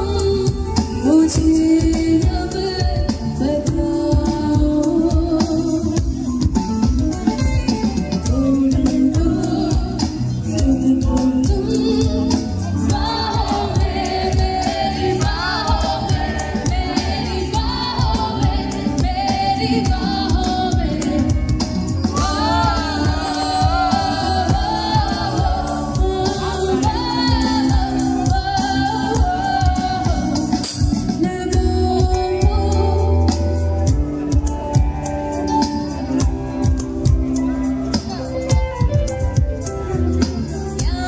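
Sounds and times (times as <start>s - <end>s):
woman singing into microphone: 0.0s - 6.2s, 8.2s - 33.8s, 40.7s - 41.0s
bass guitar: 0.0s - 41.0s
electric guitar: 0.0s - 41.0s
steady drum beat: 0.0s - 41.0s.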